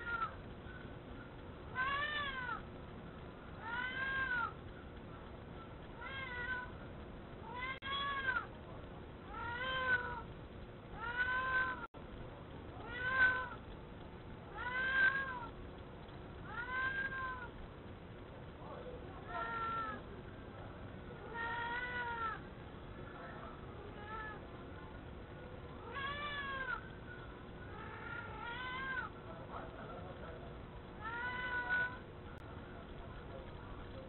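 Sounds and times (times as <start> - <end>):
cat meowing: 1.7 - 2.6, 3.6 - 4.6, 6.0 - 6.8, 7.4 - 8.5, 9.3 - 10.2, 11.0 - 11.9, 12.8 - 13.6, 14.5 - 15.5, 16.5 - 17.5, 21.2 - 22.4, 24.0 - 24.4, 25.8 - 26.9, 27.7 - 29.1, 31.0 - 32.0.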